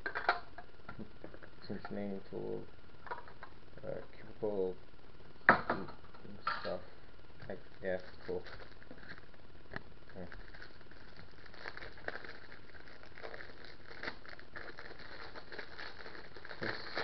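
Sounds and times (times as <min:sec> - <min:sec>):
plastic packaging crinkling: 0:07.7 - 0:09.3, 0:10.0 - 0:17.0.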